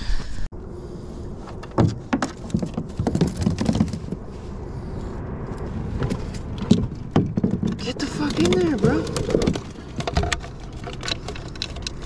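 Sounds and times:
gear knocking and rattling on kayak: 1.6 - 4.3, 6.0 - 12.0.

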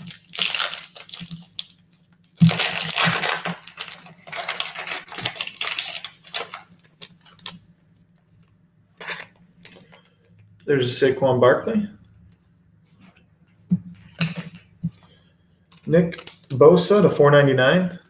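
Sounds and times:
foil wrapper crinkling: 0.0 - 7.6, 15.7 - 16.6.

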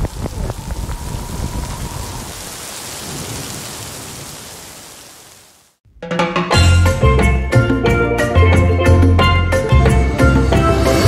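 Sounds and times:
low rumbling: 0.0 - 3.3
heavy rain hissing: 0.0 - 5.8.

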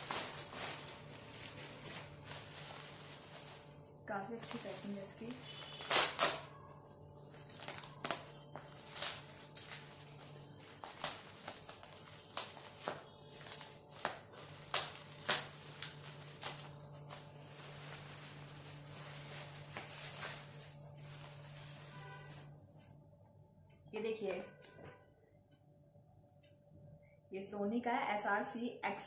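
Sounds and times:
packaging crinkling: 0.0 - 22.5.

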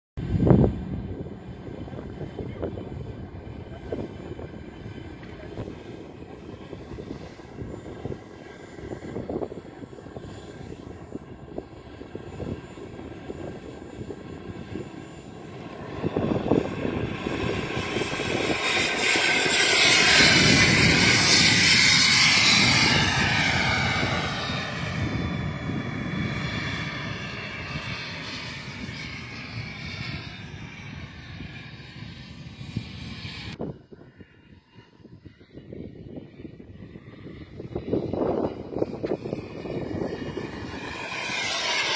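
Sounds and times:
model jet engine whine: 0.2 - 41.9.

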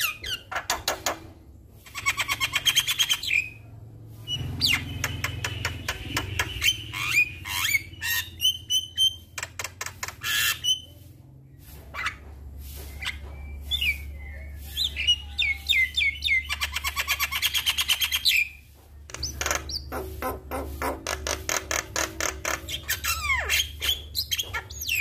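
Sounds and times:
bird whistling and chattering: 1.9 - 3.6, 4.2 - 10.9, 12.9 - 25.0.

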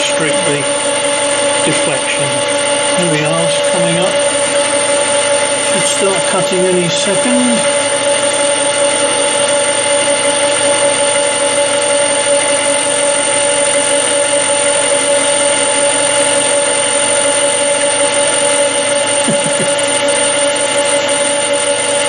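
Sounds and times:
metal lathe motor humming: 0.0 - 22.0
thin high whine: 0.0 - 22.0.

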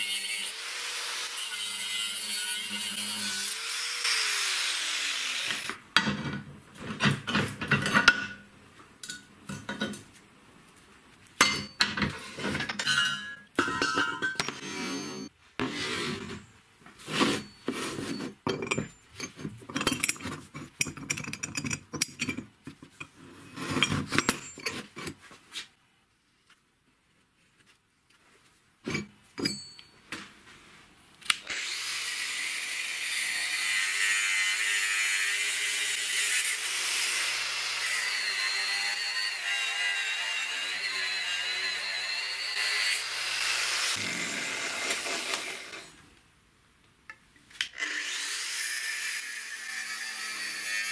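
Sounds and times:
angle grinder cutting steel: 0.0 - 5.8, 31.5 - 46.0, 47.8 - 50.9
steel parts clanking on a bench: 11.4 - 15.3, 17.3 - 25.2, 28.9 - 29.9.

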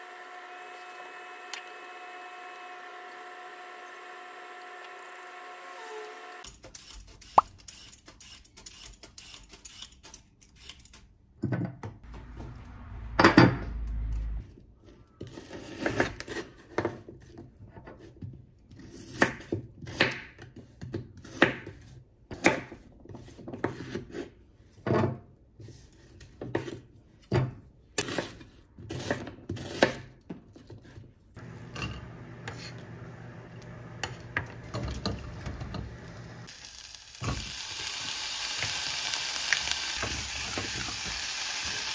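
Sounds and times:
frying sizzle in saucepan: 31.4 - 41.9.

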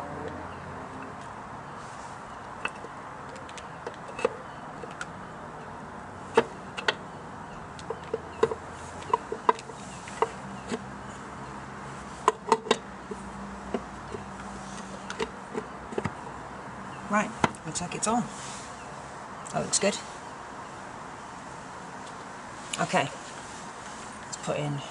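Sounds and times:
metal casing clicking and knocking: 7.8 - 10.8, 12.2 - 14.3.

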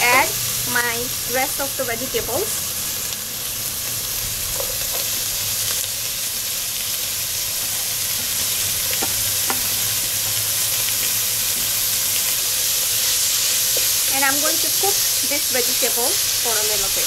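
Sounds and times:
vegetables sizzling in hot oil: 0.0 - 17.0
wooden spoon scraping and tapping: 8.2 - 9.7.

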